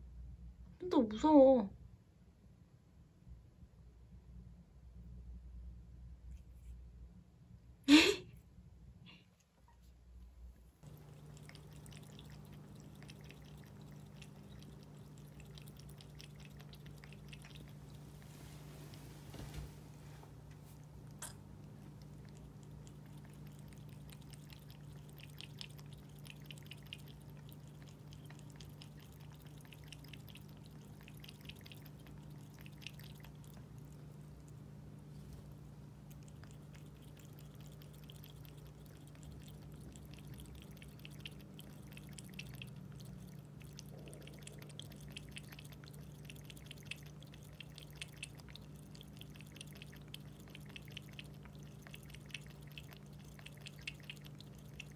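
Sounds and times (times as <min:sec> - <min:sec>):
fountain pump humming: 0:10.8 - 0:18.4, 0:20.8 - 0:54.9
cat lapping water: 0:10.8 - 0:54.9.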